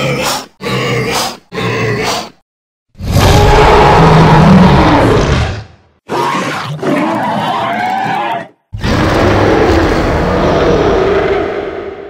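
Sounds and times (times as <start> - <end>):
deep heavy beast roar: 3.0 - 8.2, 8.8 - 12.0.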